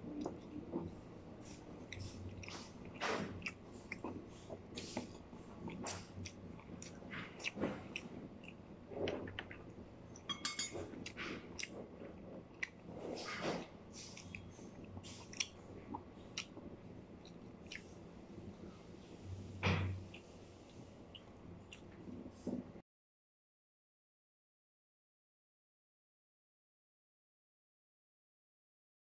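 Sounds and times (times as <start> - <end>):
person chewing: 0.1 - 18.0, 20.0 - 22.6.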